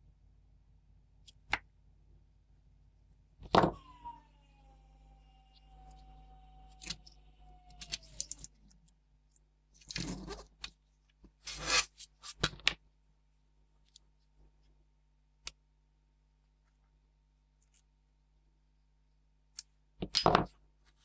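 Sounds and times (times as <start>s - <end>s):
rubbing and scraping: 9.8s - 12.5s.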